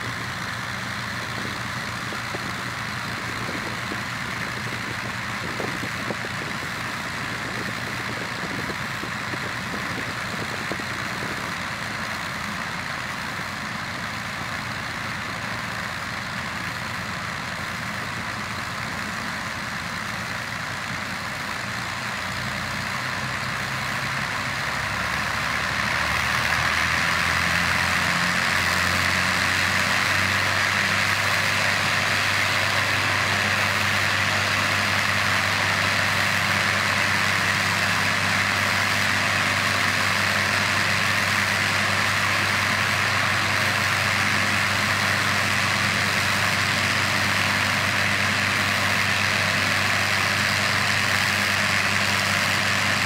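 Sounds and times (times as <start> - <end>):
aircraft engines running: 0.0 - 53.0.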